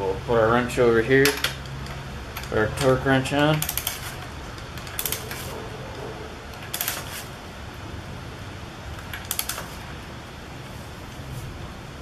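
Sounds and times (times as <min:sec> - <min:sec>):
ratchet wrench clicking: 0:01.2 - 0:05.5, 0:06.6 - 0:07.1, 0:09.1 - 0:09.7.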